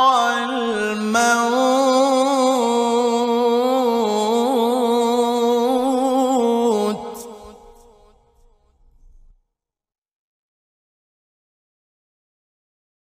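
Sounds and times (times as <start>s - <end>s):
man reciting melodically: 0.0s - 8.2s.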